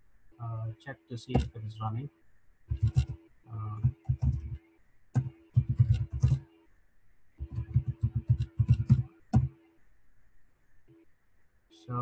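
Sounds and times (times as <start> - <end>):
typing on a computer keyboard: 2.7 - 3.2, 3.8 - 4.6, 5.2 - 6.4, 7.4 - 9.5.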